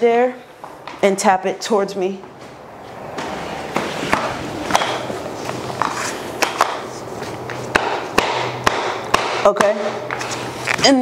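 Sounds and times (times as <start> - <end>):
hammer tapping block on plank: 7.7 - 10.2.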